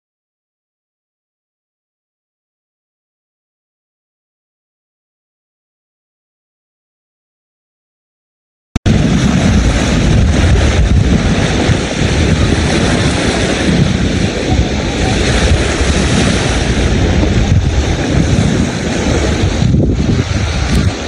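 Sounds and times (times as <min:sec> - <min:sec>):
wind buffeting microphone: 0:08.9 - 0:21.0.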